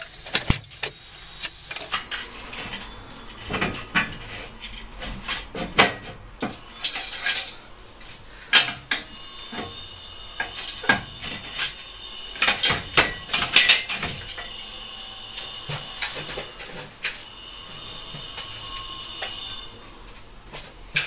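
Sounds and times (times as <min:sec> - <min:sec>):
steel parts clinking and clanking: 0:00.0 - 0:09.8, 0:10.4 - 0:11.8, 0:12.4 - 0:14.6, 0:15.5 - 0:21.0.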